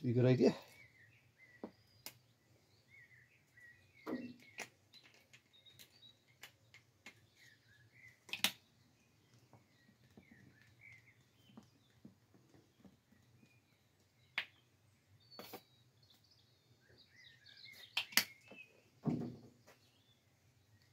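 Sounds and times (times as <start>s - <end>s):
small birds chirping: 0.0s - 20.9s
plastic cap clicks and taps: 17.9s - 18.4s.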